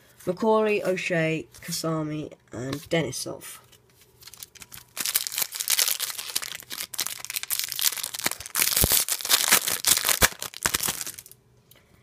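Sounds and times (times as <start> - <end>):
foil packet crinkling and tearing: 4.0 - 11.4.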